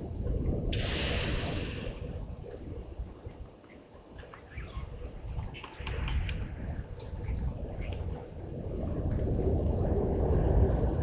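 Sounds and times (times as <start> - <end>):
low rumbling noise: 0.0 - 3.6, 4.6 - 11.0
insects chirring: 0.0 - 11.0
bird chirps: 3.7 - 6.0.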